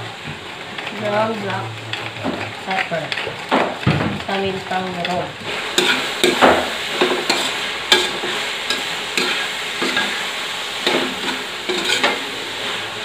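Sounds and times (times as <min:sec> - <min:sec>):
meat sizzling in a wok: 0:00.0 - 0:13.0
spoon scraping and clinking on pan: 0:05.8 - 0:10.2, 0:10.8 - 0:12.3.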